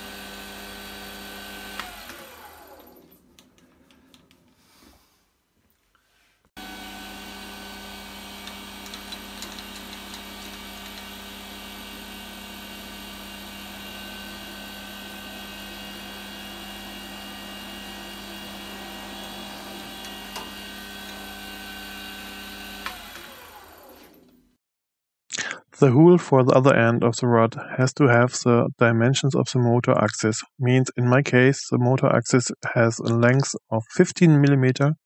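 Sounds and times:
metal lathe whining: 0:00.0 - 0:03.1, 0:06.6 - 0:24.2.

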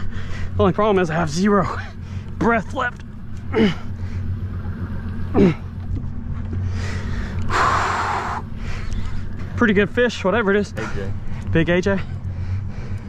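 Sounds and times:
steady low hum: 0:00.0 - 0:13.0
man gasping and groaning: 0:03.5 - 0:04.0
rushing breath-like burst: 0:06.6 - 0:09.4.

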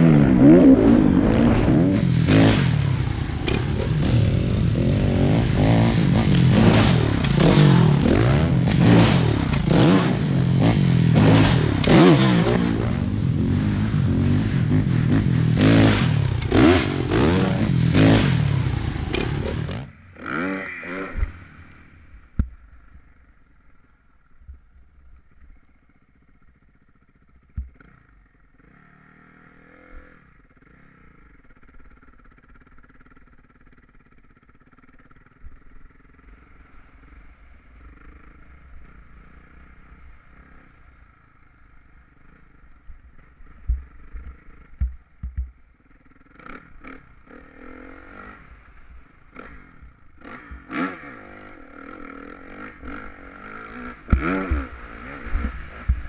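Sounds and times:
dirt bike engine revving: 0:00.0 - 0:21.9, 0:27.7 - 0:37.0, 0:46.0 - 0:56.0.

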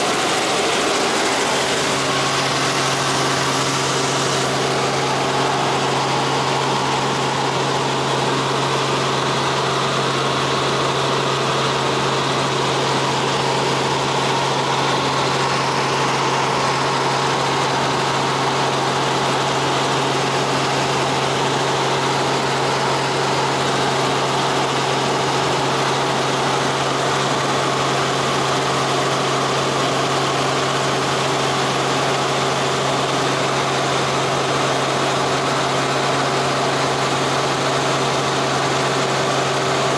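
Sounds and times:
rushing air: 0:00.0 - 0:09.9
helicopter engine and rotors drone: 0:00.0 - 0:39.9.

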